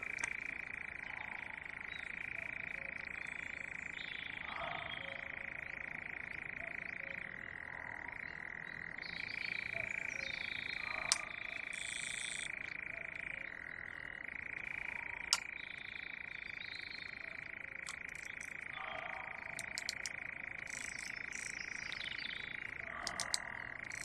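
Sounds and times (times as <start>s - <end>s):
sharp clicks: 0.0s - 0.4s, 15.3s - 15.5s, 17.8s - 18.6s, 19.5s - 21.6s, 23.0s - 24.0s
chorus of frogs calling: 0.0s - 24.0s
bird-like calls: 20.7s - 24.0s.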